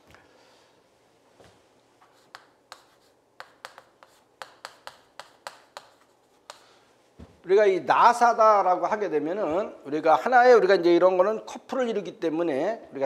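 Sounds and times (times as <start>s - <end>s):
chalk tapping and scraping: 2.0s - 6.8s.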